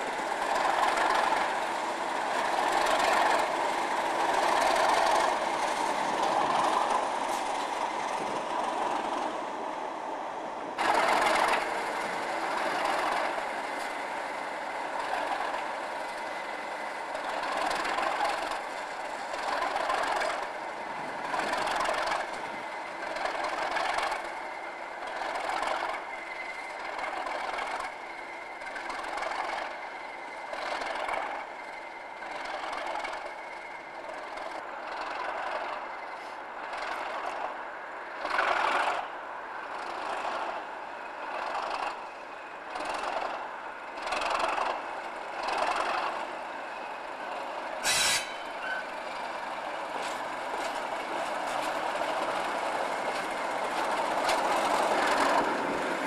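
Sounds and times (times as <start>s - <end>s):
diesel locomotive engine: 0.0s - 56.0s
wheels clattering over rail joints: 0.0s - 56.0s
sharp burst of noise: 47.8s - 48.8s.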